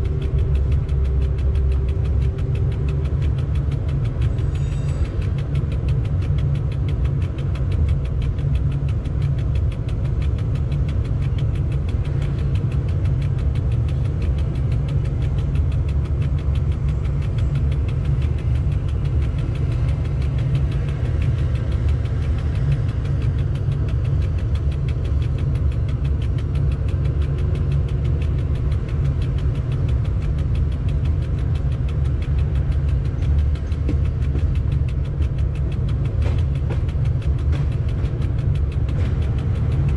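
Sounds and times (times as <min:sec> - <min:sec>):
locomotive cab low rumble: 0:00.0 - 0:39.9.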